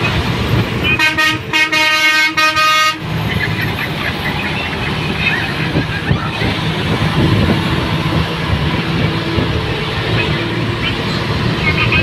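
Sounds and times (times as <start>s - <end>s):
vehicle driving rumble: 0.0s - 12.0s
vehicle horn honking: 0.9s - 3.0s.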